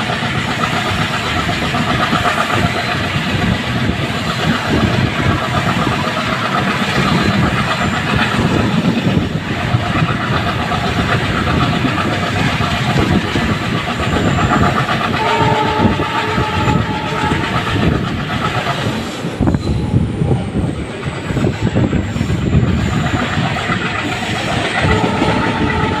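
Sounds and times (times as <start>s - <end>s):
train wheels clattering over rail joints: 0.0s - 26.0s
locomotive horn: 15.1s - 17.9s, 24.8s - 26.0s.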